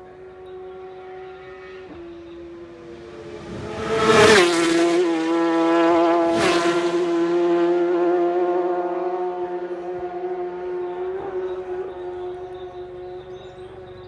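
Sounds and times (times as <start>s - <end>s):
race motorcycles at high revs: 0.0s - 14.0s.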